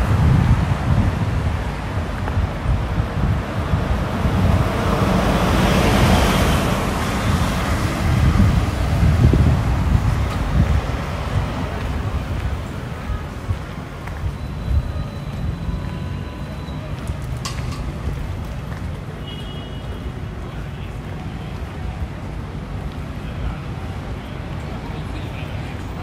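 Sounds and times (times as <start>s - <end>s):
wind buffeting microphone: 0.0s - 19.2s.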